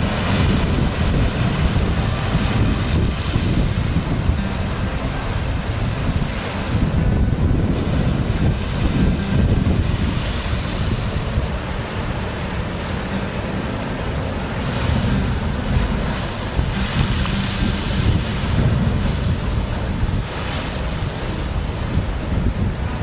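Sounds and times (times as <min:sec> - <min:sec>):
surf washing: 0:00.0 - 0:23.0
wind rumble on microphone: 0:00.0 - 0:23.0.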